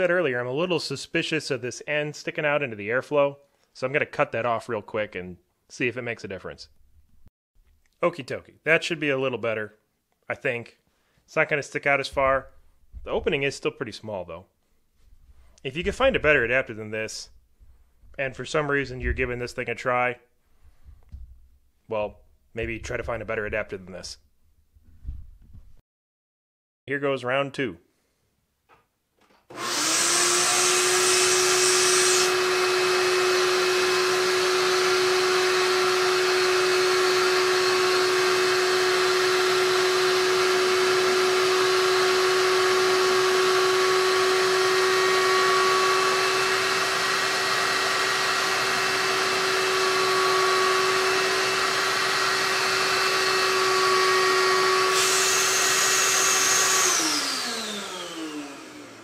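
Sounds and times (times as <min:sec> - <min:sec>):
shop vac running: 0:15.6 - 0:17.4, 0:29.5 - 0:59.0.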